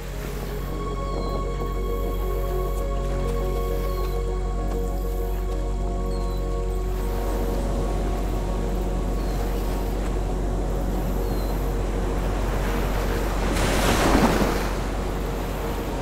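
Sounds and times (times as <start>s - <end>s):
surf washing on a beach: 7.0s - 16.0s.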